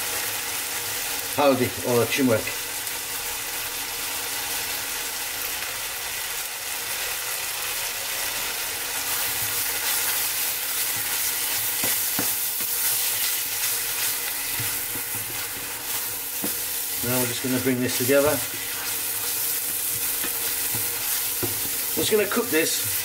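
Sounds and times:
masala sizzling in frying pan: 0:00.0 - 0:23.0
spatula stirring and scraping: 0:09.0 - 0:23.0.

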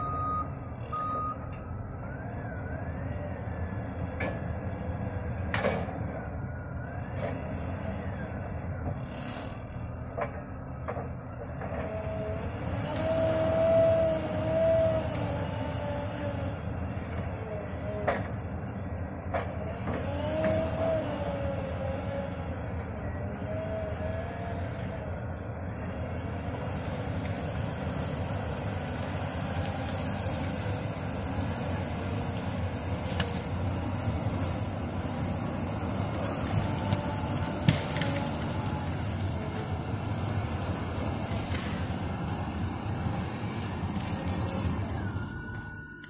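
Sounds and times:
diesel engine running: 0:00.0 - 0:46.0
wavering whine: 0:29.6 - 0:46.0.

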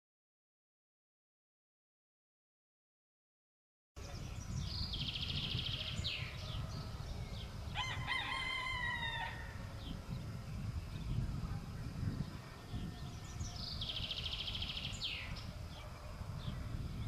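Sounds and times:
small birds singing: 0:04.0 - 0:17.0
rooster crowing: 0:07.7 - 0:09.7.

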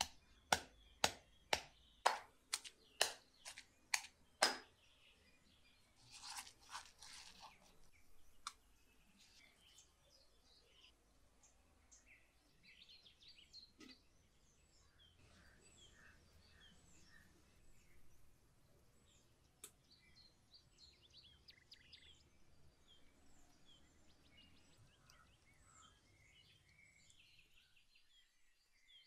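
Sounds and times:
stone pestle pounding in mortar: 0:00.0 - 0:04.6
small birds chirping faintly: 0:00.0 - 0:29.0.

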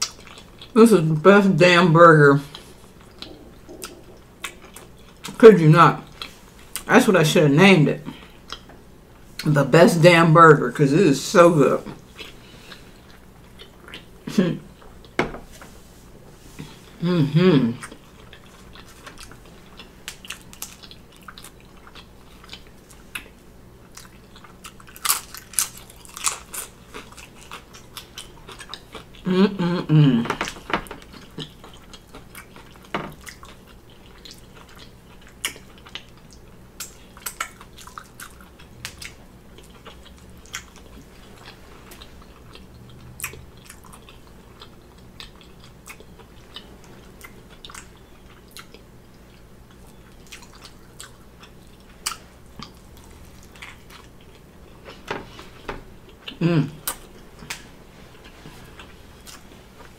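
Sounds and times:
crunchy chewing: 0:17.8 - 0:29.2, 0:30.4 - 0:55.1
loud vocal hum: 0:56.4 - 0:56.8.

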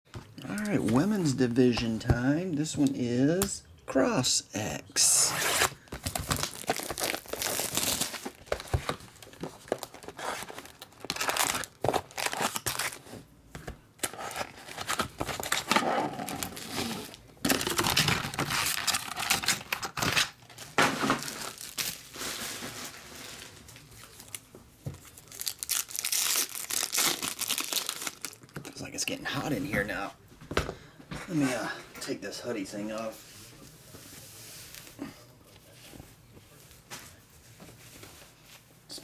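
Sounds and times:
foil wrappers tearing open: 0:05.2 - 0:08.8, 0:09.7 - 0:13.0, 0:14.0 - 0:23.0, 0:25.2 - 0:28.5
shrink-wrap crinkling: 0:05.3 - 0:13.2, 0:14.0 - 0:28.8.

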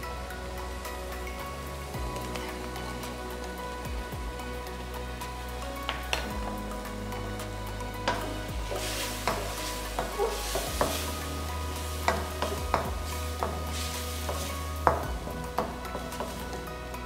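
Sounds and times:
stir-fry sizzling: 0:05.8 - 0:16.8.

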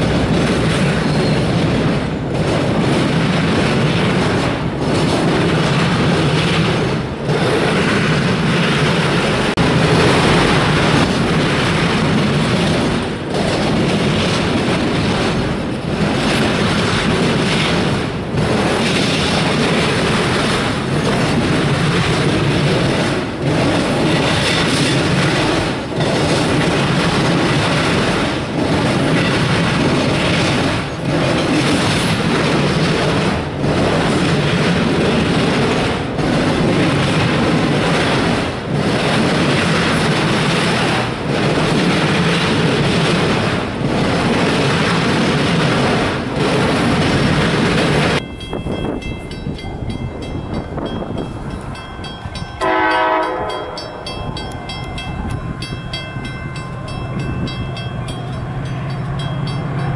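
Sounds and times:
freight train rumbling past: 0:00.0 - 0:59.9
train horn blast: 0:52.6 - 0:54.1.

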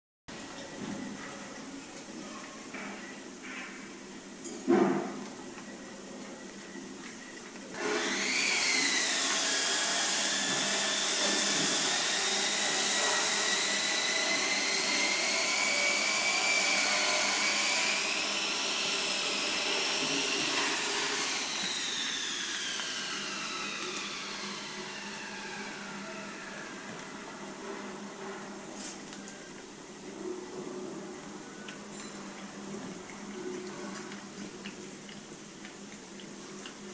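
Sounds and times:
power tool motor whining: 0:07.8 - 0:26.9.

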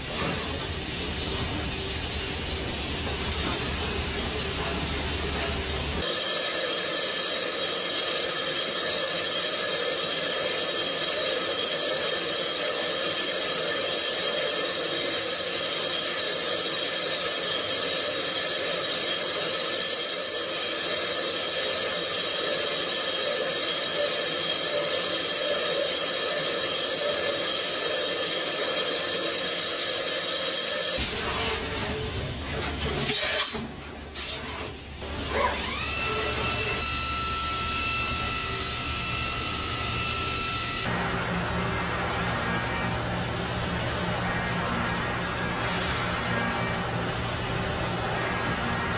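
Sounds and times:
cutter and coolant hiss: 0:06.0 - 0:31.1
machine whining tones: 0:35.0 - 0:48.9.

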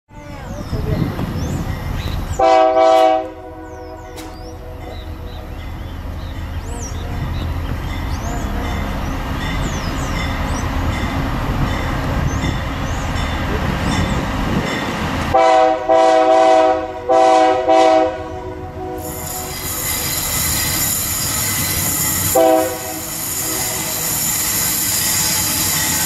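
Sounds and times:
locomotive engine and rail rumble: 0:00.1 - 0:26.0
train air horn blasts: 0:02.4 - 0:05.0, 0:15.3 - 0:26.0.

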